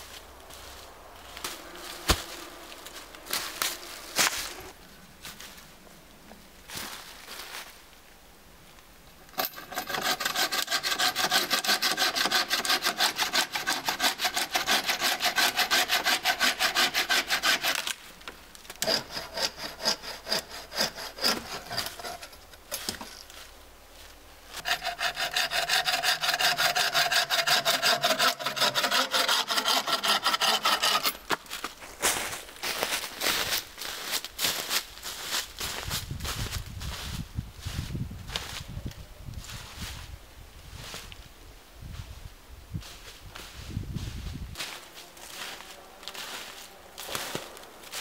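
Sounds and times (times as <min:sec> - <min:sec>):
bow saw cutting branches: 0:09.3 - 0:18.1, 0:18.7 - 0:22.4, 0:24.6 - 0:31.6.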